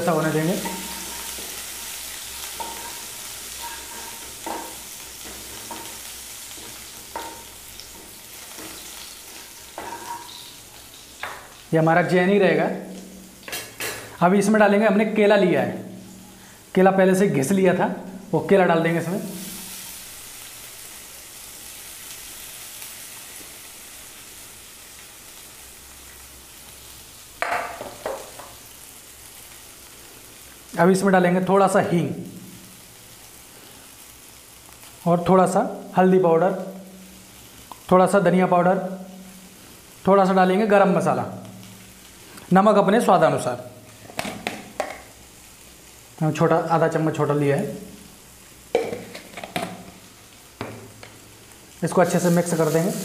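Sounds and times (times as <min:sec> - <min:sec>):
spices sizzling in hot oil: 0:00.0 - 0:53.0
spatula scraping pan: 0:02.5 - 0:10.4.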